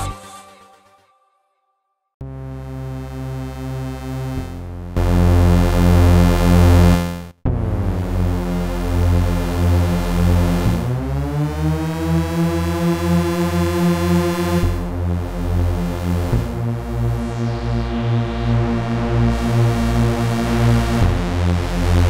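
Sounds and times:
synthesizer playing held chords: 2.2s - 22.0s.

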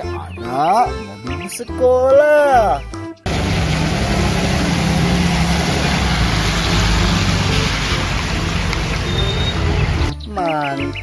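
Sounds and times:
tyres hissing on wet pavement: 3.3s - 10.0s
bus engine running: 3.3s - 10.2s.

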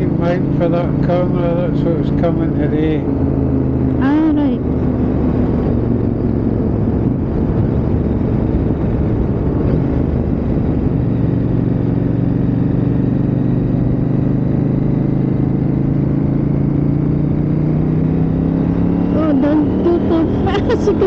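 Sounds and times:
motorcycle engine hum: 0.0s - 21.0s
wind noise: 3.0s - 14.0s.

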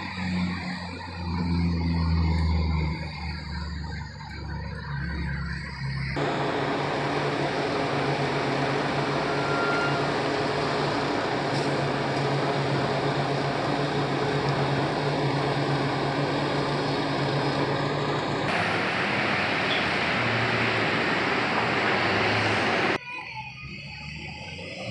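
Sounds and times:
traffic on wet street: 0.0s - 24.9s
diesel engine idling: 0.8s - 23.0s
rain hissing: 6.2s - 23.0s.

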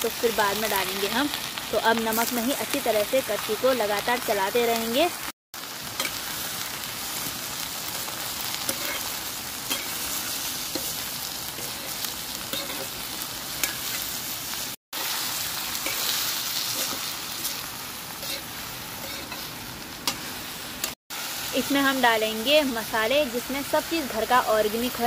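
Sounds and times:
vegetables sizzling in hot oil: 0.0s - 25.0s
metal ladle scraping a pan: 8.7s - 9.1s, 18.2s - 19.5s.

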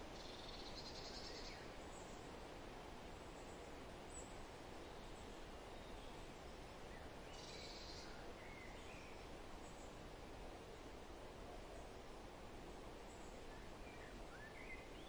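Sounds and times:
outdoor background hiss: 0.0s - 15.0s
faint bird chirps: 0.1s - 2.3s, 6.9s - 10.0s, 13.0s - 15.0s.

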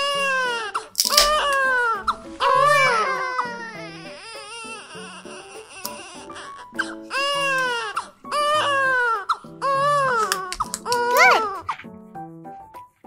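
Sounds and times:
infant crying: 0.0s - 11.8s
background music: 0.0s - 13.0s.

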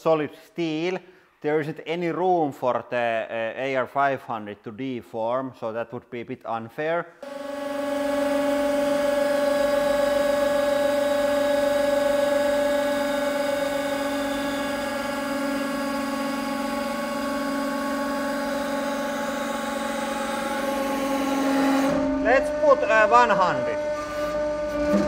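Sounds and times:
hydraulic press humming: 7.2s - 25.0s.

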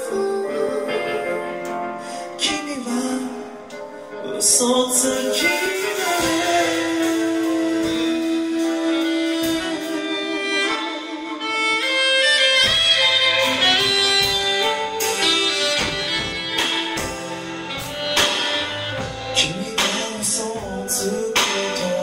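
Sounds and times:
live band playing: 0.0s - 22.0s
drum and cymbal hits: 4.4s - 10.8s, 12.6s - 22.0s
alto saxophone melody: 5.4s - 22.0s.

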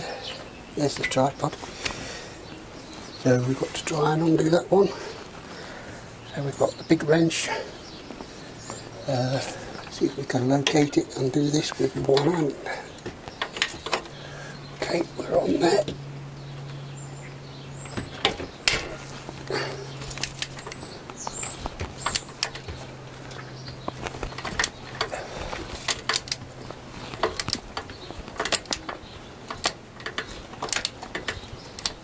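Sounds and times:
low steady hum: 0.0s - 32.0s
socket ratchet clicking: 25.9s - 26.5s, 27.2s - 32.0s.

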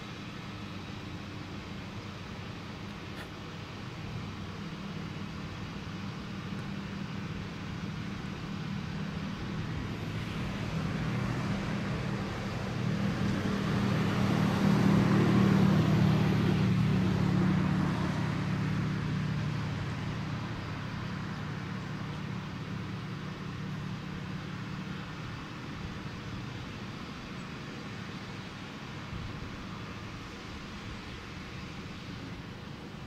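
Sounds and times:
car passing: 6.8s - 33.0s.

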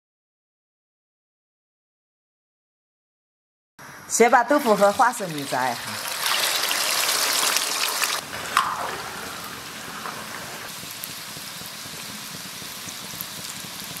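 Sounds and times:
tofu deep-frying in oil: 4.5s - 14.0s.

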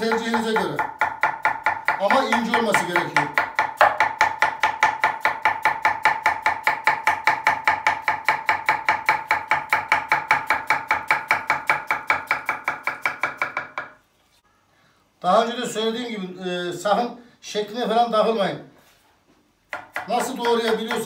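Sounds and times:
knife chopping on wooden board: 0.0s - 14.0s, 19.7s - 21.0s.

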